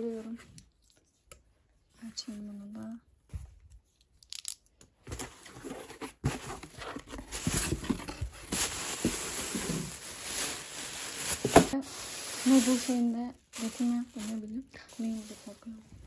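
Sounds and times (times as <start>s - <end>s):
plastic wrapping rustling: 5.8s - 16.0s.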